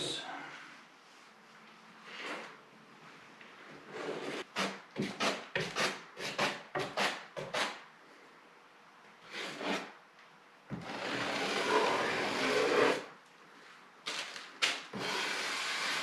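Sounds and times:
putty knife scraping compound: 4.0 - 7.8, 9.3 - 9.9, 10.8 - 13.1.

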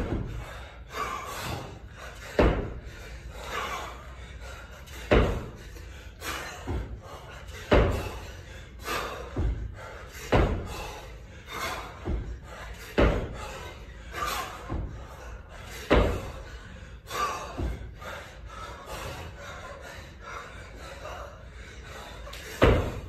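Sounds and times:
kettlebell heavy thud: 0.0 - 0.5, 1.4 - 3.0, 4.9 - 5.7, 7.6 - 8.3, 9.0 - 11.0, 11.6 - 15.1, 15.8 - 16.5, 17.4 - 18.0, 22.6 - 23.0.

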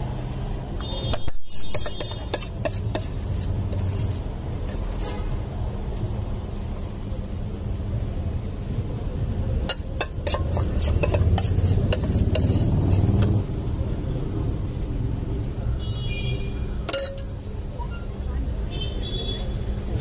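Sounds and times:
street traffic rumble: 0.0 - 20.0
metal spoon clinking on a plate: 9.6 - 12.6, 16.9 - 17.4.

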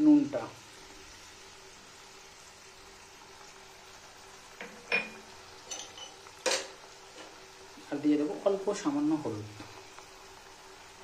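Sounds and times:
low steady stove hum: 0.0 - 11.0
dishes and utensils clinking: 4.6 - 7.3.

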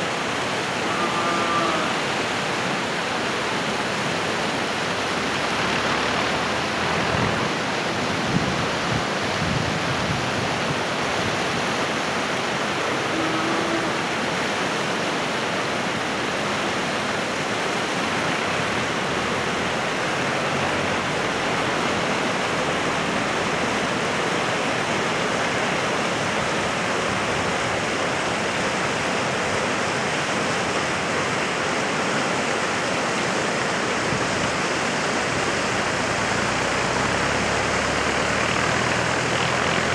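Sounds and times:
mountain stream rushing: 0.0 - 39.9.

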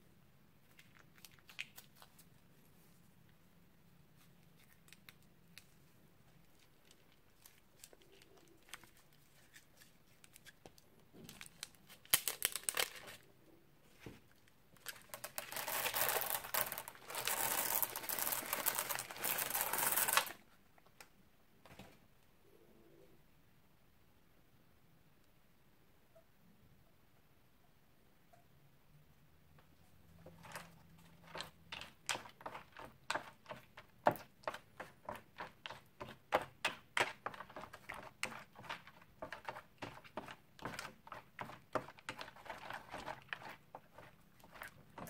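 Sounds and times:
plastic bag crinkling: 6.4 - 13.3, 14.7 - 20.5
small beads pouring onto tray: 15.2 - 20.4.

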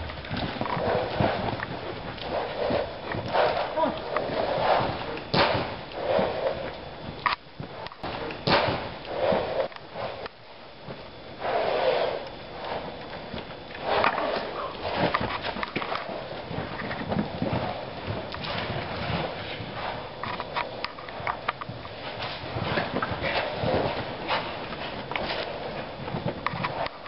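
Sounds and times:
horses snorting: 0.0 - 10.3, 11.3 - 27.0
horse hoofbeats on soft ground: 0.0 - 27.0.

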